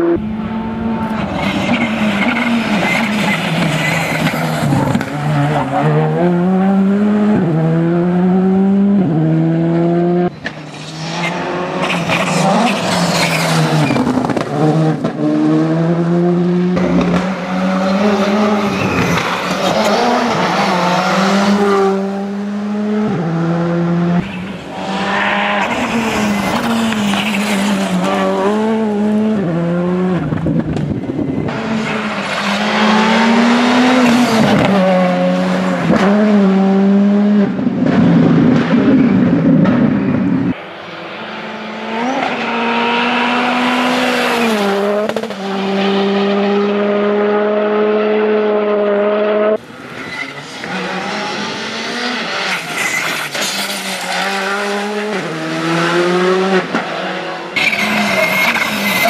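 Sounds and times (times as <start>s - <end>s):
rally car engine revving hard: 0.0s - 10.4s, 11.0s - 40.6s, 41.4s - 49.6s, 50.6s - 59.0s.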